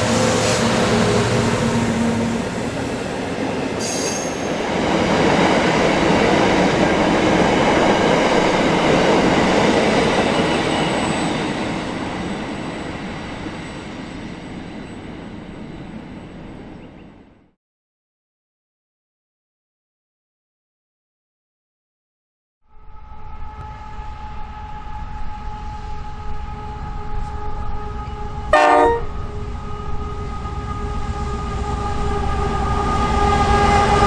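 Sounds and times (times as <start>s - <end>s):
train wheels rumbling and clattering: 0.0s - 17.0s
high wheel squeal: 3.7s - 4.6s.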